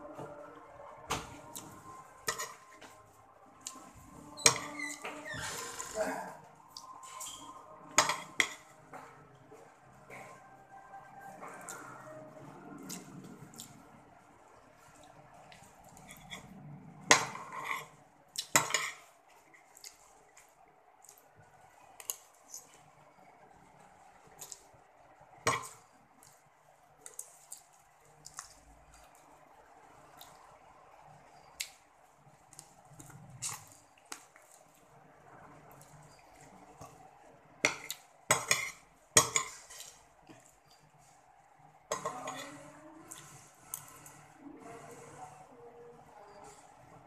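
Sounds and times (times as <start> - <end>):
metal spoon scraping ceramic plate: 2.3 - 2.7, 17.1 - 17.9, 18.6 - 19.0, 38.3 - 39.9.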